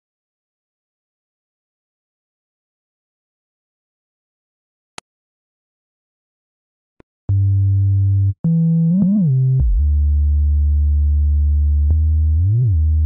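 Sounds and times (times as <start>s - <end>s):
deep synthesized bass notes: 7.3s - 13.0s.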